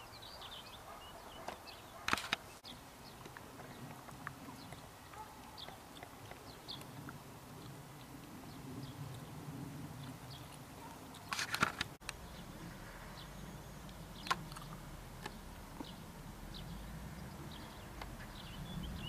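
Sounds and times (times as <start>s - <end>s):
rustling: 11.1s - 13.2s
low steady rumble: 12.0s - 19.0s
faint bird chirps: 12.2s - 19.0s.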